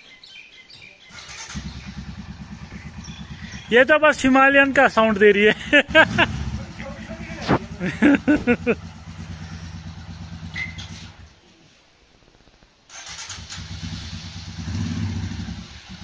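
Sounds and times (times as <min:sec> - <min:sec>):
motorcycle engine starting: 0:01.1 - 0:04.3, 0:05.1 - 0:11.4, 0:12.9 - 0:16.0
motorcycle engine idling: 0:01.1 - 0:11.4.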